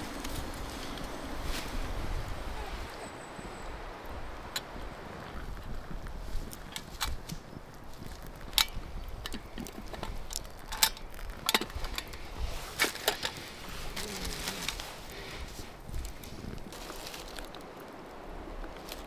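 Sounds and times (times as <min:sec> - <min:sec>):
sharp clicks and snaps: 0:06.5 - 0:07.4, 0:08.0 - 0:12.2.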